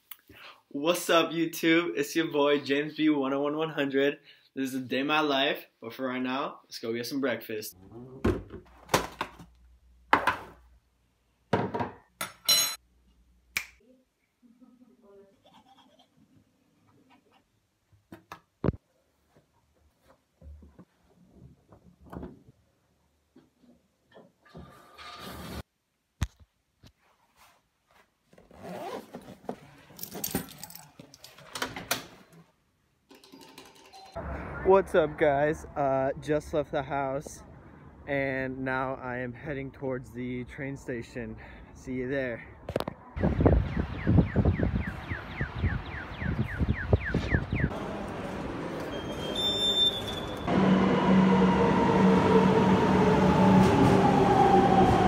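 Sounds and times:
objects knocking on wooden worktop: 10.1 - 10.5, 11.5 - 12.0
keys jangling: 30.0 - 31.4.

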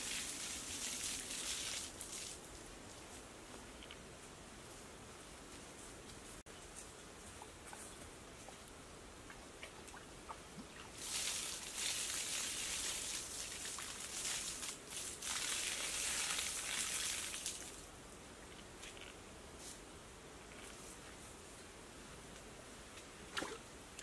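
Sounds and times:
water splashing on turf roof: 0.0 - 2.4, 10.9 - 17.9.

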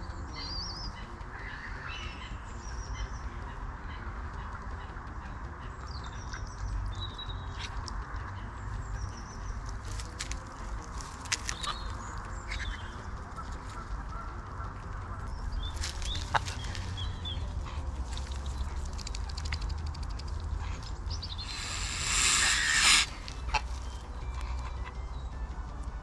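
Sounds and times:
short bird calls and clicks: 0.0 - 25.6
ducks and geese calling: 0.0 - 25.8
steady low rumble: 0.0 - 26.0
loud rush of noise: 21.4 - 23.7.

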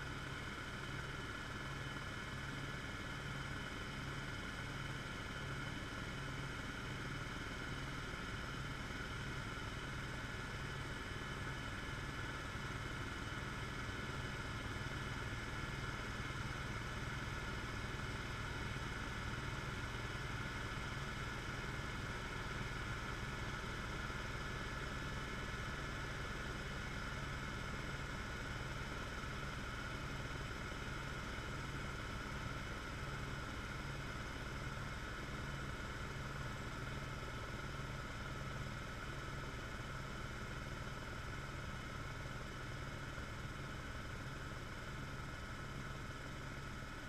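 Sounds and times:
helicopter rotor and engine drone: 0.0 - 47.0.

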